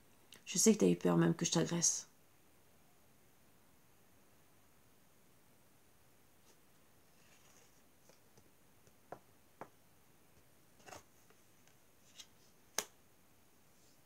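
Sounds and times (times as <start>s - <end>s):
cards clicking and tapping: 12.2s - 13.0s.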